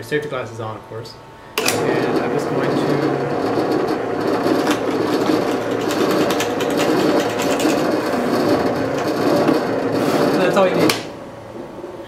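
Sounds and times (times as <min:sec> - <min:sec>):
drill press motor running: 0:01.6 - 0:11.6
drill bit cutting wood: 0:01.8 - 0:11.0.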